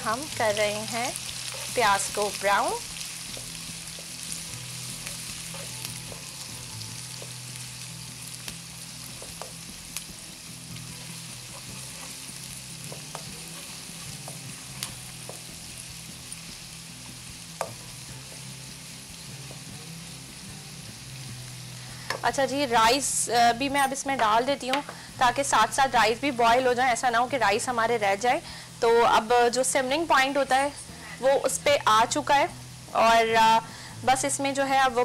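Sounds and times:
onions sizzling in hot oil: 0:00.0 - 0:35.0
spoon tapping and scraping pan: 0:12.8 - 0:15.5.

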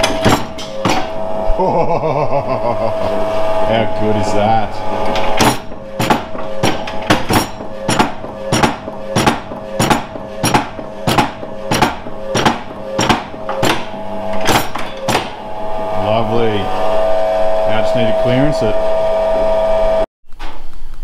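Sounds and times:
metallic clank: 0:00.0 - 0:01.5, 0:03.0 - 0:15.6
electric motor hum: 0:00.0 - 0:20.1.

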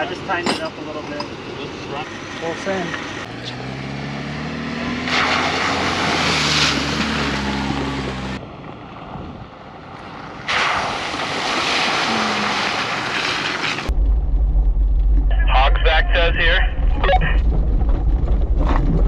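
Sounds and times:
tyres splashing through puddles: 0:04.1 - 0:09.1, 0:09.8 - 0:13.9.

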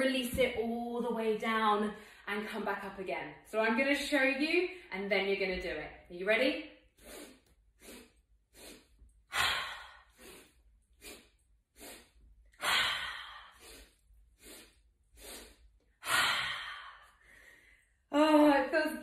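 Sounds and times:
woman exhaling: 0:07.0 - 0:11.2, 0:11.8 - 0:17.7
woman inhaling quickly: 0:07.0 - 0:17.9.

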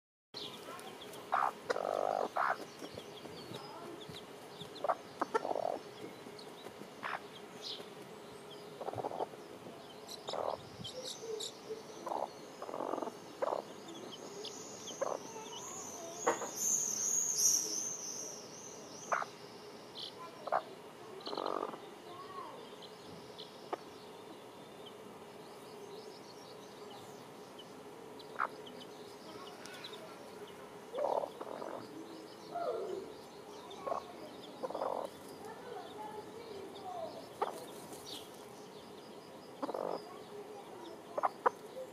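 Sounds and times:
chicks peeping: 0:00.4 - 0:16.7, 0:19.1 - 0:19.4, 0:20.0 - 0:41.9
hen clucking: 0:01.2 - 0:07.4, 0:08.7 - 0:09.4, 0:10.1 - 0:14.1, 0:15.0 - 0:15.6, 0:16.2 - 0:16.5, 0:20.4 - 0:21.8, 0:28.2 - 0:28.8, 0:30.9 - 0:31.9, 0:33.7 - 0:35.2, 0:37.3 - 0:37.8, 0:39.6 - 0:40.1, 0:41.2 - 0:41.6.

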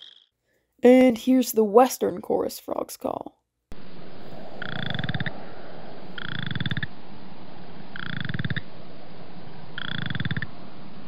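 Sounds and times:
frog calling in pulsed trills: 0:09.8 - 0:10.5.

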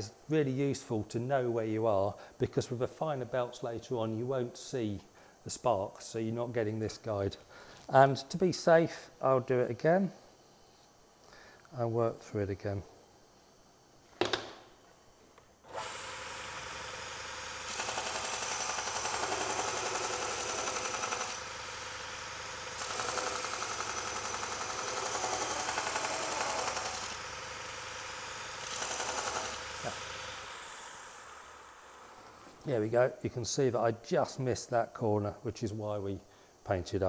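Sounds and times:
belt grinder running: 0:15.7 - 0:32.6.

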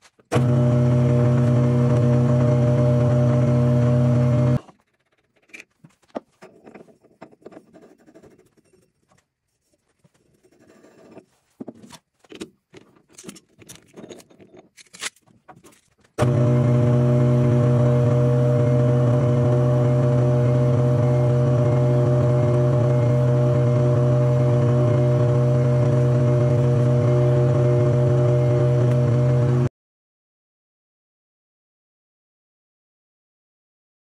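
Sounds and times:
metal lathe humming: 0:16.2 - 0:29.7.

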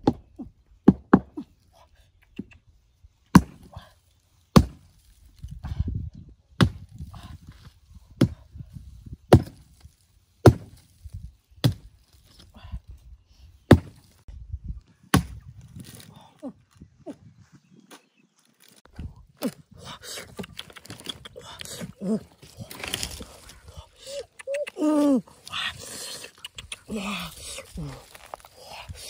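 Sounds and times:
axe chopping log: 0:00.8 - 0:01.4, 0:03.3 - 0:03.7, 0:04.5 - 0:04.9, 0:06.6 - 0:06.8, 0:08.2 - 0:08.4, 0:09.3 - 0:09.7, 0:10.4 - 0:10.8, 0:11.6 - 0:11.9, 0:13.7 - 0:14.0, 0:15.1 - 0:15.5.

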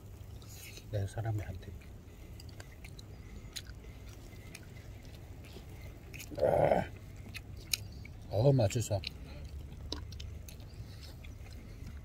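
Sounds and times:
steady low hum: 0:00.0 - 0:12.0
person chewing: 0:02.1 - 0:08.3, 0:09.0 - 0:12.0.

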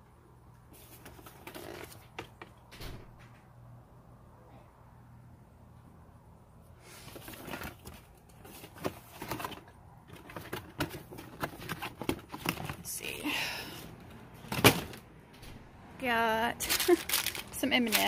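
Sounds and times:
plastic packaging crinkling: 0:16.6 - 0:18.0.

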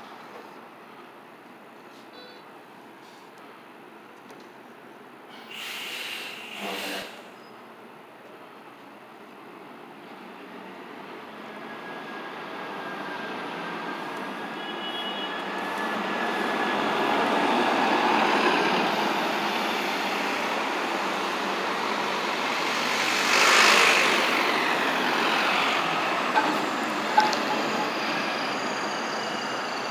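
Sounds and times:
bus driving past: 0:09.6 - 0:29.9.

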